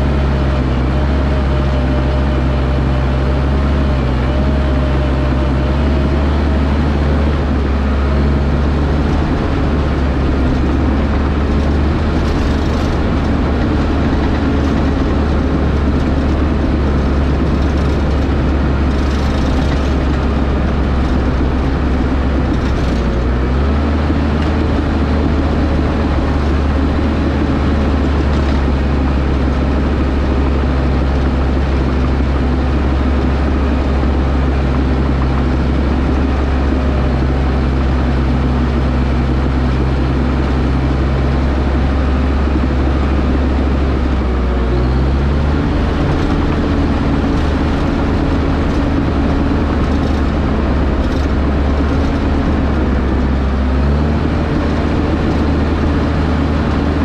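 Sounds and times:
excavator diesel engine humming: 0:00.0 - 0:57.0.

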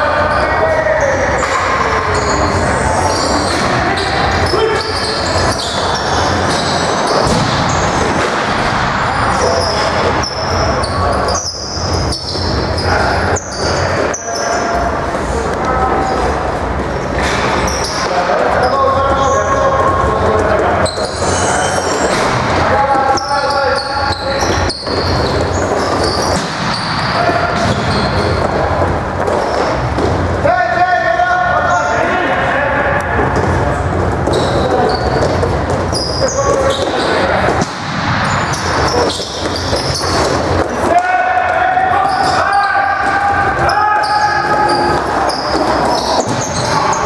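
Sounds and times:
shoe squeaks on floor: 0:00.0 - 0:08.2, 0:09.1 - 0:14.8, 0:17.0 - 0:30.0, 0:33.4 - 0:41.1, 0:41.8 - 0:47.0
arena crowd din: 0:00.0 - 0:47.0
lacrosse sticks and ball clattering: 0:09.4 - 0:30.3, 0:33.2 - 0:47.0.

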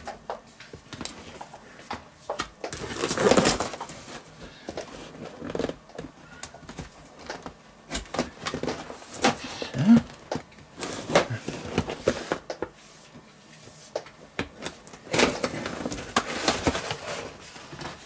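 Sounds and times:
knife slitting packing tape: 0:02.7 - 0:03.8.

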